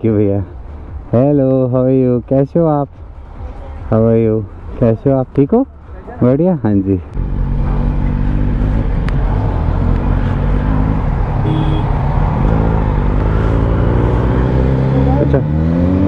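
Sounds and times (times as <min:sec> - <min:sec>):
motorcycle engine at low revs: 0:07.2 - 0:16.0.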